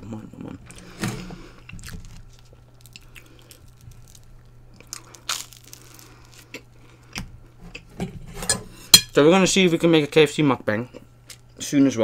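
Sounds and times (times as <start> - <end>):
faint low hum: 0.0 - 12.0
food crunching: 1.5 - 7.9
person chewing: 1.5 - 7.9.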